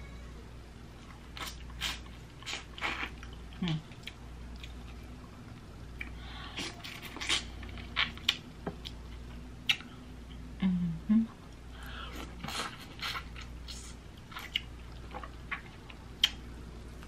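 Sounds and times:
person eating wetly: 1.3 - 5.0, 6.0 - 8.4.

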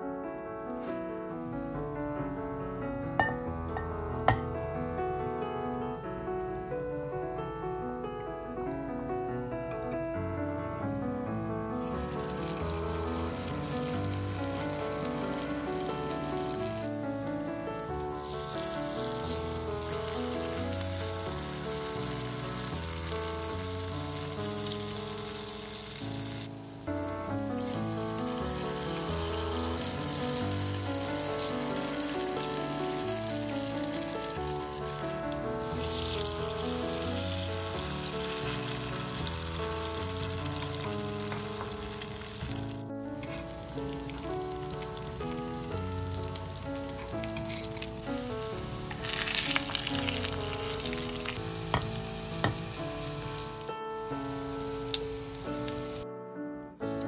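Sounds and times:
background music with melody: 0.0 - 57.0
pancakes sizzling in oil: 11.7 - 56.0.

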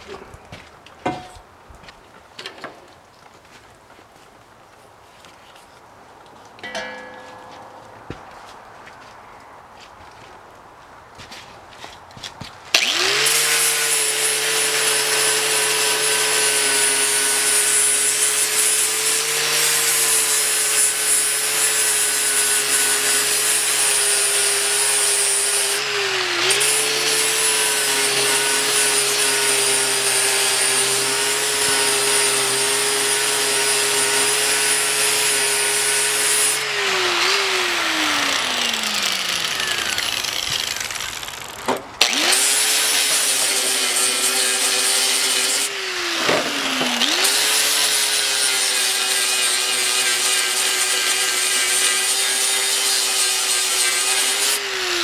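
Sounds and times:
angle grinder grinding metal: 12.8 - 55.0
grinder spinning down: 22.6 - 51.3.

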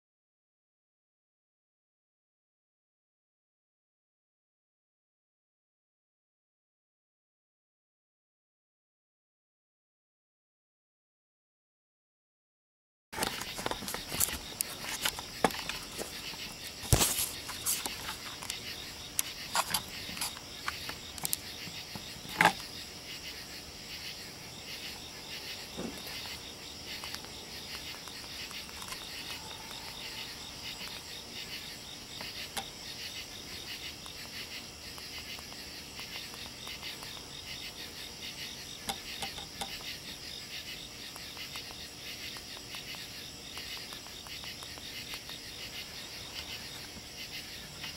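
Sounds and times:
crickets chirring: 13.2 - 47.9.

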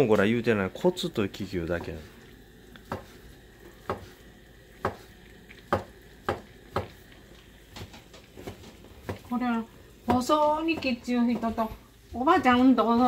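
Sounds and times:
knife knocking on cutting board: 2.9 - 3.1, 3.8 - 4.1.

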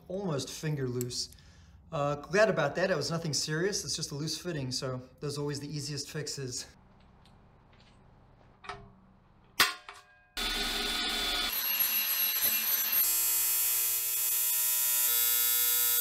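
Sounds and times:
angle grinder grinding metal: 10.4 - 16.0
arc welding buzz: 10.4 - 16.0.

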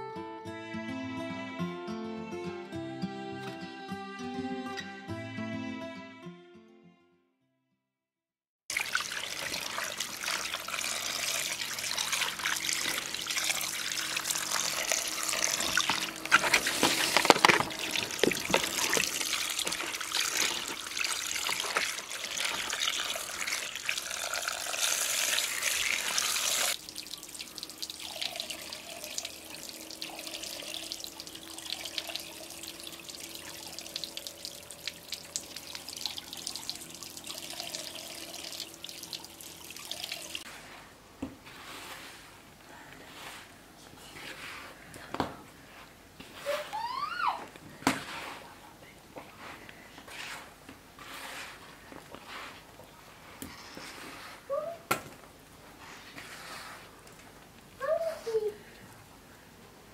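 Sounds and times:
tap water splashing in colander: 8.7 - 40.4
hands rinsing fish: 8.7 - 40.5.

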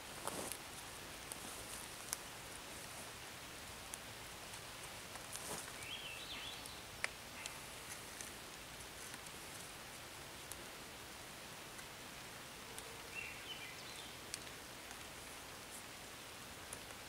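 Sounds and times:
cord rustling around pole: 0.0 - 6.3
steady forest hiss: 0.0 - 17.0.

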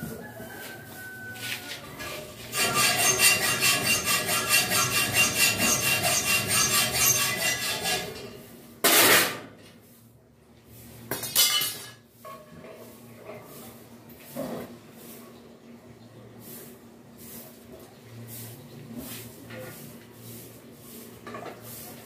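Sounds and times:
hacksaw cutting metal rod: 2.5 - 8.3.

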